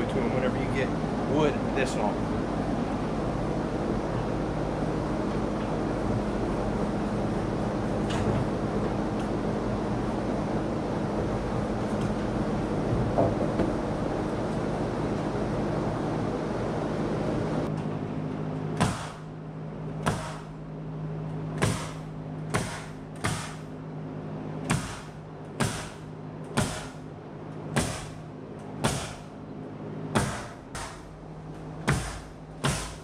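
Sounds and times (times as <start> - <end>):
steady low hum: 0.0 - 33.0
nail gun firing: 22.6 - 23.6.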